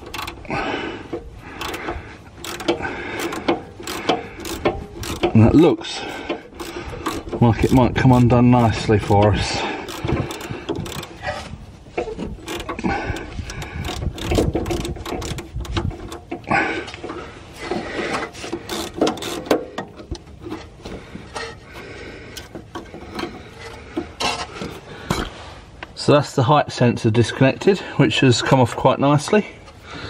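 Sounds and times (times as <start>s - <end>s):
hand ratchet clicking: 0.0s - 0.5s, 1.1s - 11.2s, 12.0s - 20.7s, 21.3s - 24.8s.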